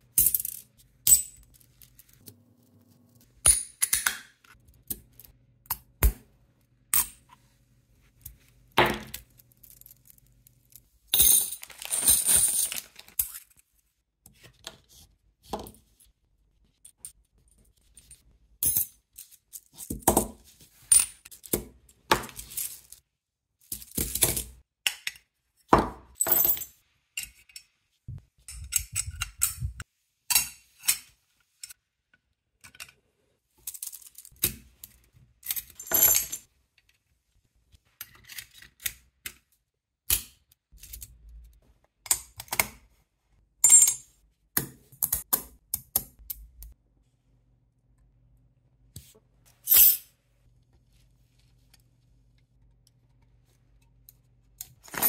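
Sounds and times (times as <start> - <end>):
metal parts clinking and tapping: 28.4 - 31.8.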